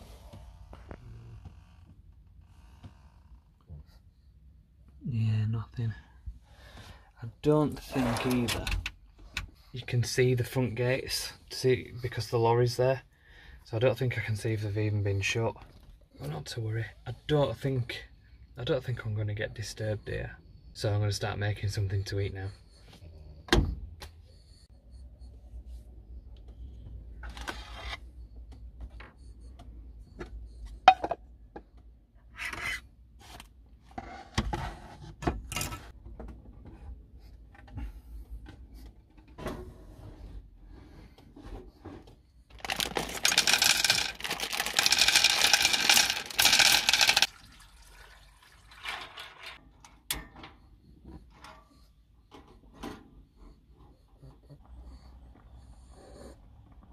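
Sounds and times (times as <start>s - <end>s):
kitchen items clicking and clattering: 42.5s - 47.3s.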